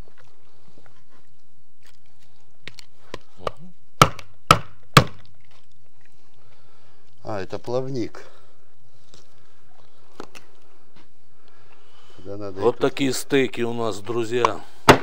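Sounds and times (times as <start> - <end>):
cleaver chopping through fish bones: 3.4 - 5.3.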